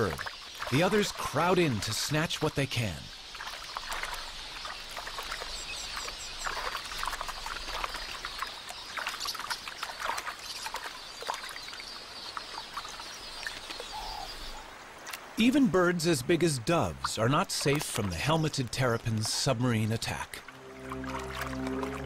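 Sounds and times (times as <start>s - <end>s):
flock of birds twittering: 0.0s - 14.7s
water splashing and sloshing: 0.0s - 22.0s.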